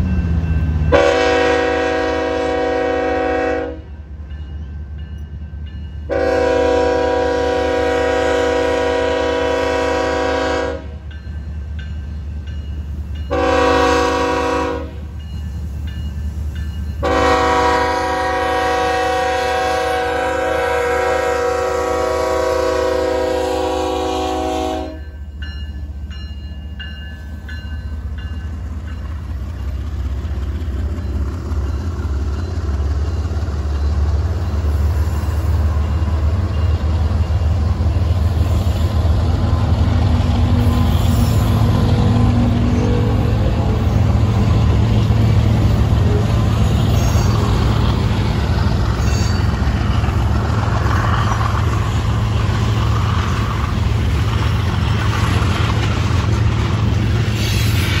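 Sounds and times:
train rumbling: 0.0 - 58.0
locomotive air horn: 0.9 - 3.9, 6.1 - 11.0, 13.3 - 15.1, 17.0 - 25.1, 40.4 - 44.1, 45.8 - 47.8.

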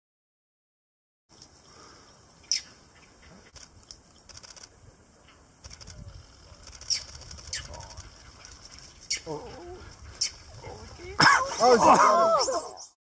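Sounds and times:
birds calling: 1.3 - 4.4, 6.2 - 13.0.

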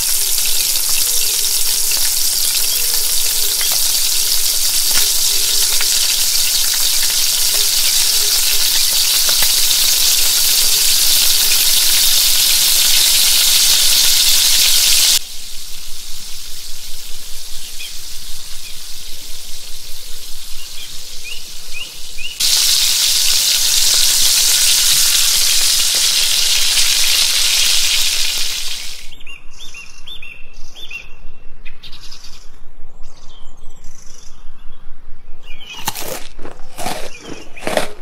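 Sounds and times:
frying sizzle: 0.0 - 29.1
birds chirping: 28.7 - 36.2, 36.8 - 38.0.

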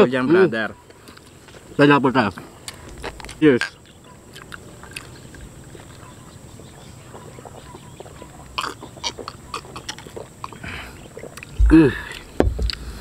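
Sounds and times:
mouth clicks: 7.1 - 12.9.

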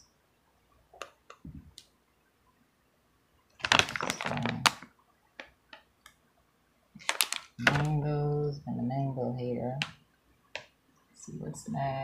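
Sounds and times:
plastic packaging crinkling: 3.6 - 4.9, 7.0 - 8.0.

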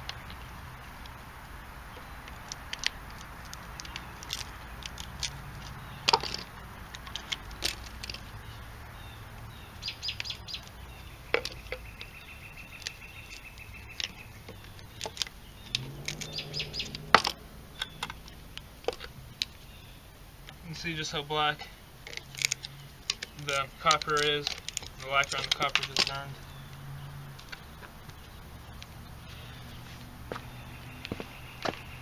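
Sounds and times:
birds chirping: 0.0 - 32.0
sharp metallic clicks: 11.3 - 19.6.

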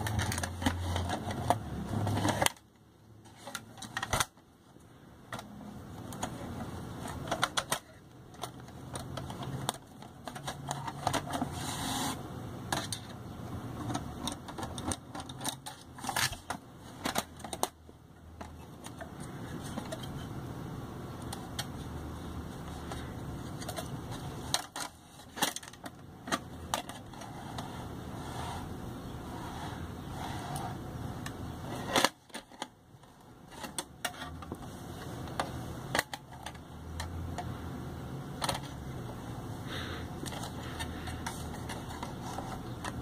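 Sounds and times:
clicks taps and scrapes: 13.8 - 20.4, 40.2 - 43.0.

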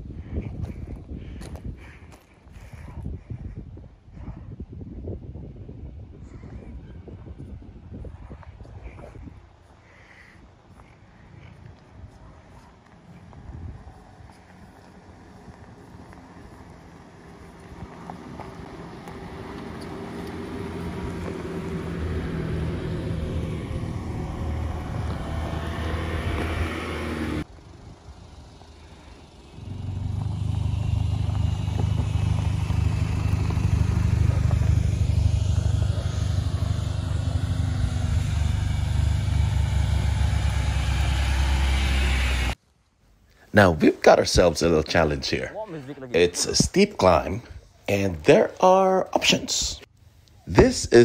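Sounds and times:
vehicle engine on dirt track: 5.4 - 42.6
low engine drone: 13.8 - 42.6.

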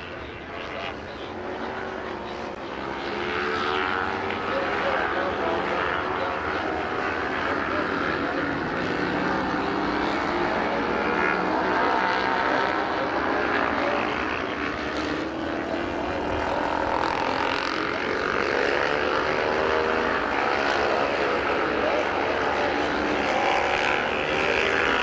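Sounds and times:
racing motorcycle engines: 0.0 - 25.0.

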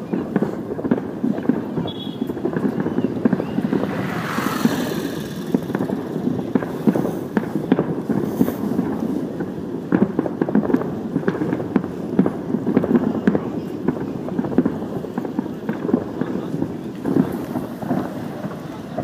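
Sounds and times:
distant fireworks booms and pops: 0.0 - 19.0
hissing rush: 2.2 - 7.4.

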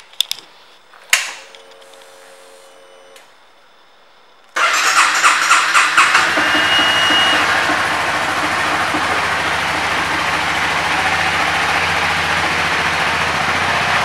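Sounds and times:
fuel pump humming: 4.6 - 14.0
motorcycle engine idling: 4.6 - 14.0.

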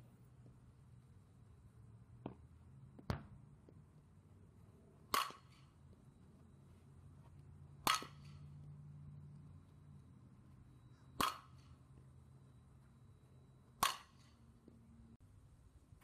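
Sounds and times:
bat cracking a ball: 5.1 - 5.8, 7.8 - 8.5, 11.2 - 11.8, 13.8 - 14.4.

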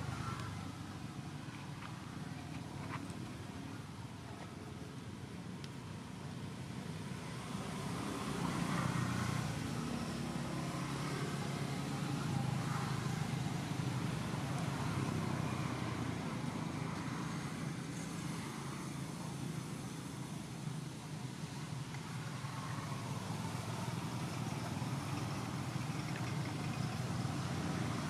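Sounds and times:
vehicle engine rumbling: 21.6 - 28.0.

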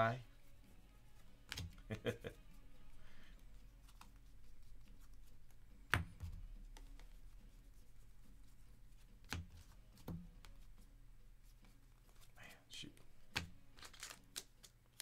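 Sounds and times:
cards flicked by hand: 1.4 - 2.0, 3.8 - 7.2, 9.1 - 10.6, 13.0 - 15.0.

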